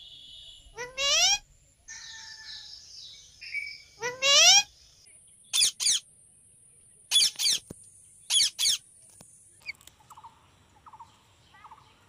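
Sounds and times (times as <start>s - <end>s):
parrot screeching: 0.8s - 1.4s, 4.0s - 4.7s.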